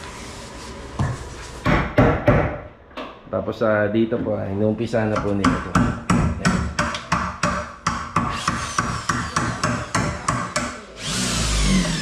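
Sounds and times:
hammer striking: 5.1s - 10.8s.

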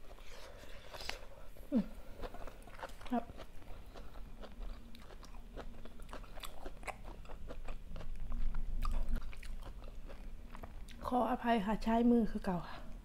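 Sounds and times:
chewing food with wet clicks: 2.2s - 11.1s.

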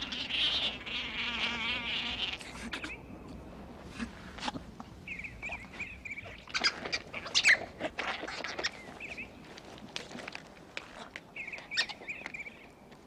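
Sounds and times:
rustling in grass and leaves: 0.0s - 13.0s
otter pups chirping: 5.0s - 9.4s, 11.4s - 12.7s.

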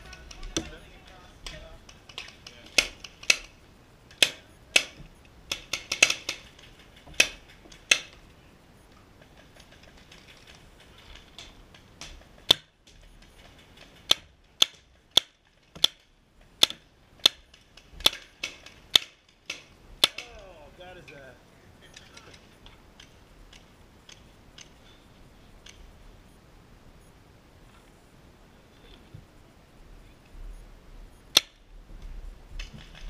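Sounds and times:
paintball markers firing: 0.0s - 8.2s, 13.3s - 20.5s.

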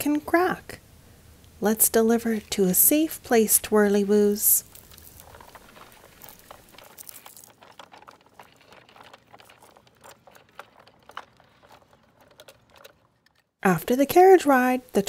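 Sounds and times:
dry leaves crackling and rustling: 4.6s - 9.6s.

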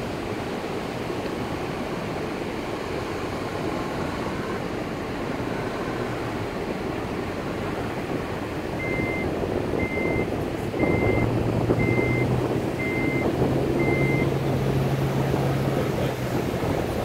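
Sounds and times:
car engine hum: 0.0s - 17.0s
surf: 0.0s - 17.0s
wind: 0.0s - 17.0s
car warning chime beeping: 8.7s - 14.5s.

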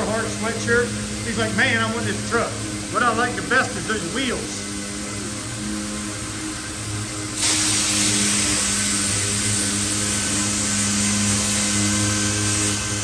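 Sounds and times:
pneumatic orbital sander running: 0.0s - 13.0s
hiss of exhaust air: 7.3s - 13.0s.

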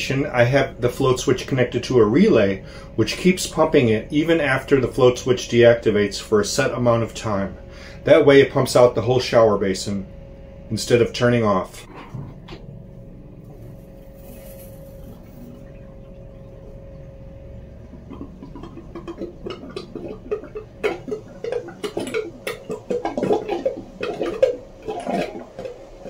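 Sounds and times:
drain gurgling and sucking: 0.0s - 26.0s
pump humming: 0.0s - 26.0s.

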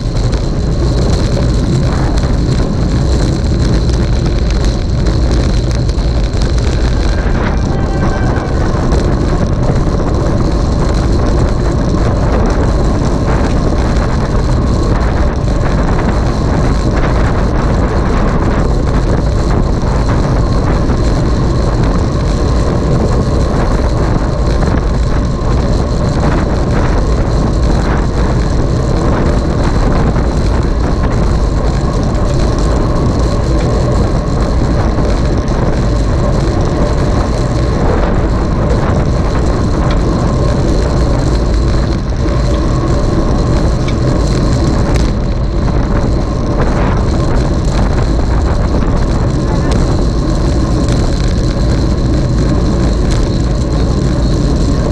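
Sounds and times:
wind rushing on microphone: 0.0s - 54.9s
faint high whine: 5.5s - 11.3s.

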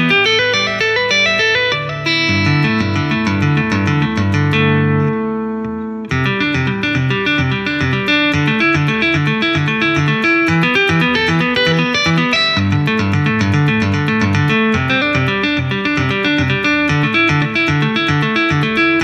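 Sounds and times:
electric guitar tapping: 0.0s - 19.0s
guitar chord ringing: 0.0s - 19.0s.

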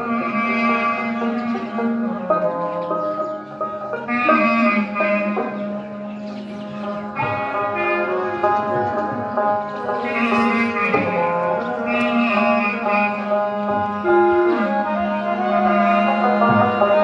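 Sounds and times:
instrumental music: 0.0s - 17.0s.

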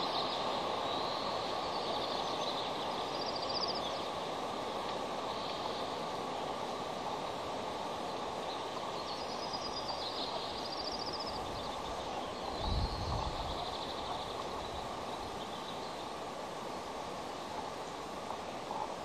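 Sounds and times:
wind and surf: 0.0s - 19.0s
wind buffeting microphone: 12.6s - 13.6s.

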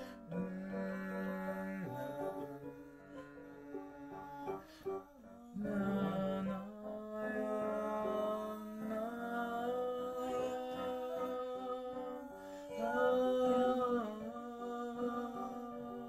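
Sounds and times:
woman and man singing: 0.0s - 16.0s.

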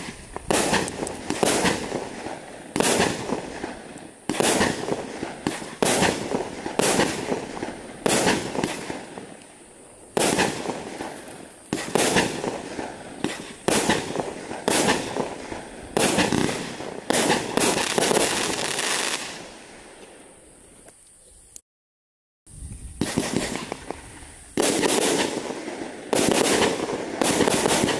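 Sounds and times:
fireworks bursting: 0.0s - 20.3s, 22.6s - 27.9s.

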